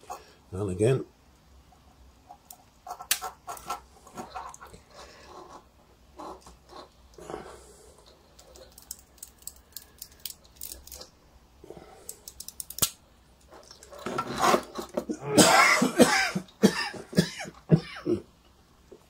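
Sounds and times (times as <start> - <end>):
man coughing loudly: 15.2 - 18.3.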